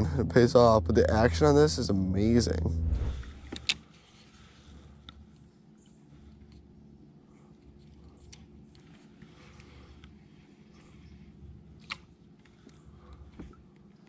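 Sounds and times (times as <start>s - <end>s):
low hum: 0.0s - 3.8s.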